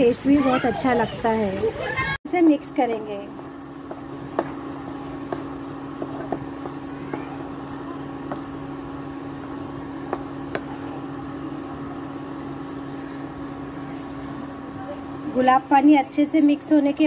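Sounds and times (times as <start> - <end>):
steady low hum: 2.3 - 16.2
spatula scraping a pan: 2.6 - 14.5
spatula knocking against a pan: 2.8 - 12.7.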